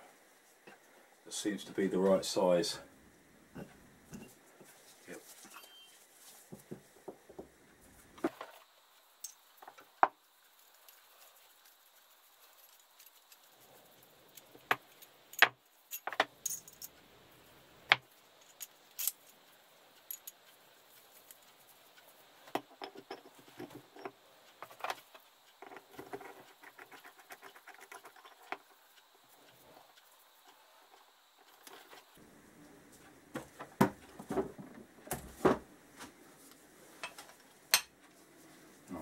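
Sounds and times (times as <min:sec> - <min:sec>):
small steel pieces clinking: 0:15.3 - 0:17.0.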